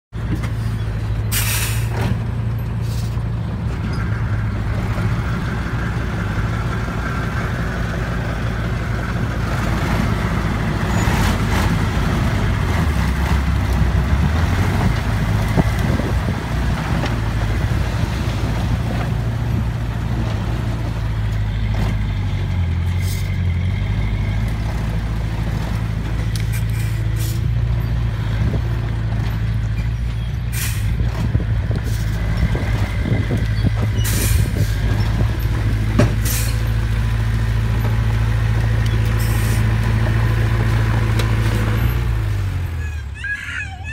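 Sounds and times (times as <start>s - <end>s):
diesel truck engine running: 0.1s - 43.9s
short air hisses: 1.3s - 2.0s.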